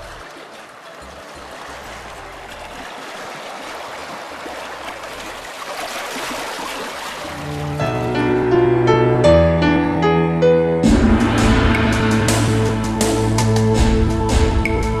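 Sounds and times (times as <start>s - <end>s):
sea water splashing over rocks: 0.0s - 8.2s.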